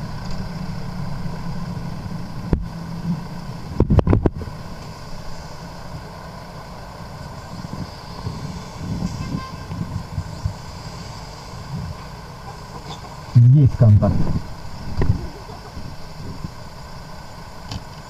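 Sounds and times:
car rumble: 0.0s - 18.0s.

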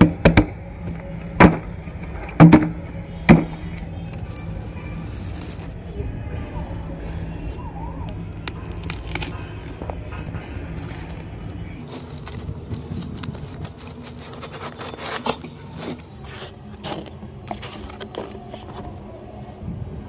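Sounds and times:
cardboard flaps tearing: 8.4s - 9.9s, 10.7s - 18.8s
knife cutting tape and cardboard: 10.7s - 18.9s.

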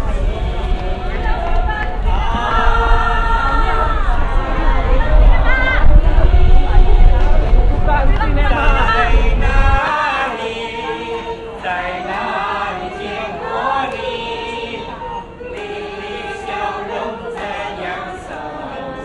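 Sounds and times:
loud low rumble: 0.0s - 9.8s
choir singing long notes: 0.0s - 19.0s.

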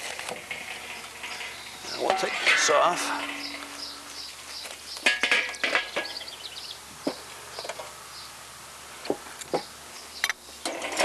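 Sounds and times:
grill lid and pan clattering: 0.0s - 6.4s, 10.6s - 11.0s
wren chirping and trilling: 1.2s - 8.4s.

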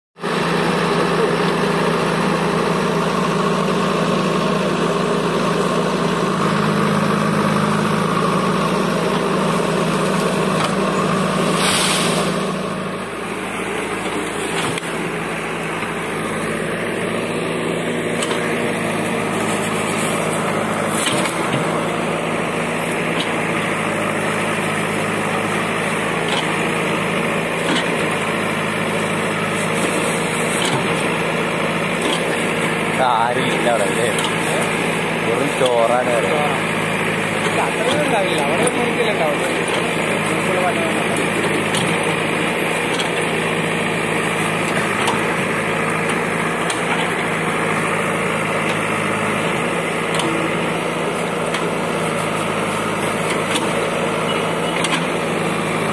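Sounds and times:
diesel engine running: 0.2s - 55.9s
short burst of noise: 11.4s - 12.5s.

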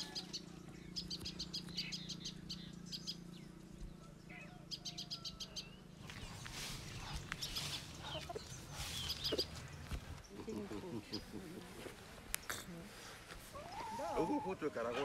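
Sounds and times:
small bird chirping: 0.0s - 11.4s
steady low hum: 0.3s - 13.8s
rustling and scuffing: 6.0s - 14.2s.

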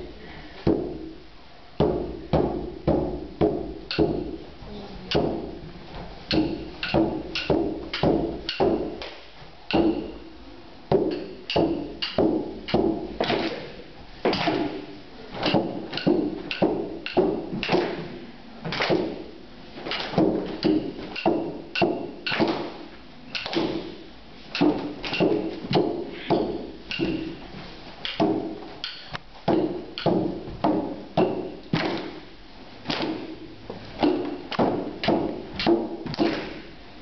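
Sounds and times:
frame drum beat: 6.3s - 9.0s.

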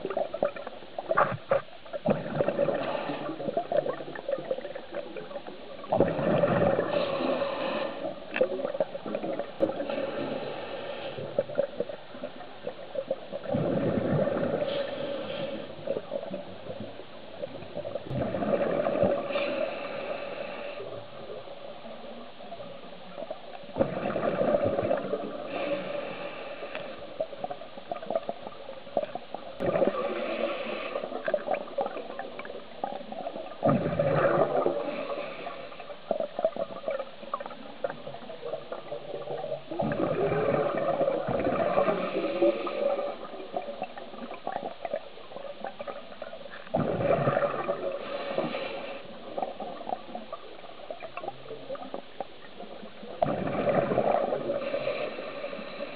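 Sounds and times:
exhaled bubbles gurgling: 0.0s - 55.9s
regulator breath hiss: 6.9s - 8.2s, 19.3s - 21.0s, 25.5s - 27.0s, 48.0s - 49.2s.

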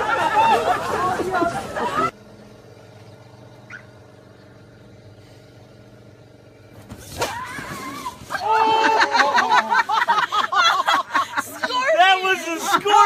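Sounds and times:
low motor hum: 0.0s - 13.0s
short rising chirp: 3.0s - 5.6s.

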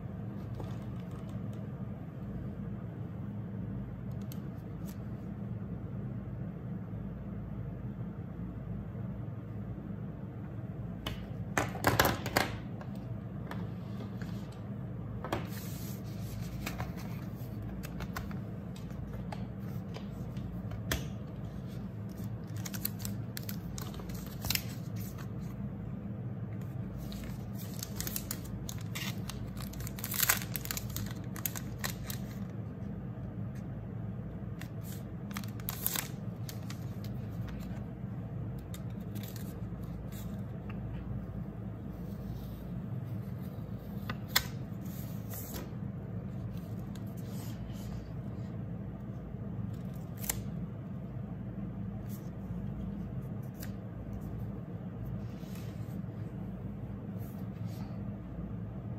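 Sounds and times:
steady low hum: 0.0s - 58.9s
plastic packaging rustling: 27.0s - 32.5s, 34.8s - 37.7s.

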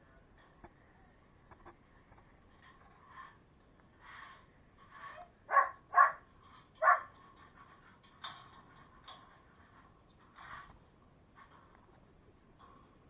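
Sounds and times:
dog barking: 5.5s - 6.2s, 6.8s - 7.1s.

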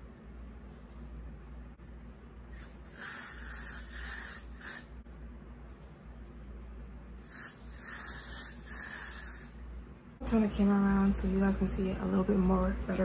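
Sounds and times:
short hissing bursts: 2.5s - 5.0s, 7.2s - 9.6s.

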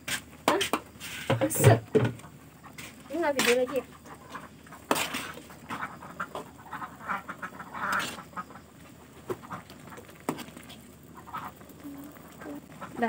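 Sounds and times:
duck quacking: 3.5s - 8.7s, 11.2s - 13.0s.

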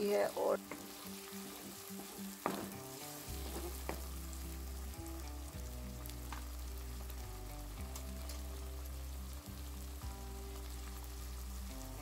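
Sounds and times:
food sizzling in hot oil: 0.0s - 12.0s
soft background music: 0.0s - 12.0s
wooden spatula knocking pan: 2.4s - 4.1s.

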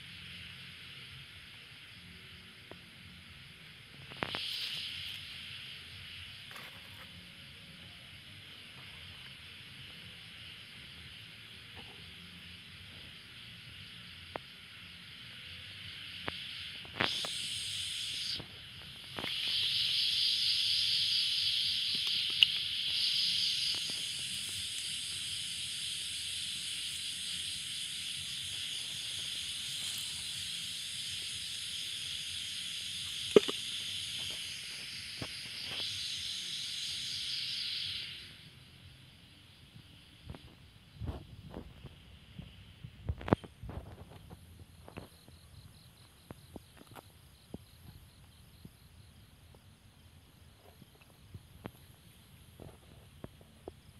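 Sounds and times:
insect rasping trill: 0.0s - 42.6s.

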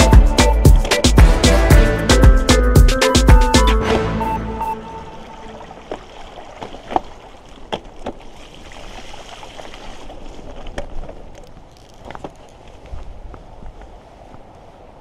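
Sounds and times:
rushing river water: 3.7s - 11.8s
bike knocking and rattling: 10.4s - 12.6s.

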